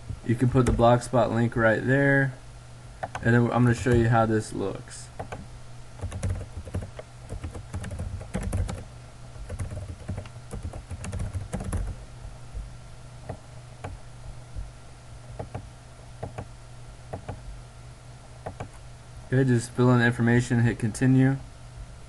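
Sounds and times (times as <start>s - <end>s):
low steady hum: 0.0s - 22.0s
typing on a computer keyboard: 5.2s - 5.4s, 6.0s - 8.8s, 9.5s - 12.0s, 15.4s - 16.5s, 17.1s - 17.4s, 18.4s - 18.8s.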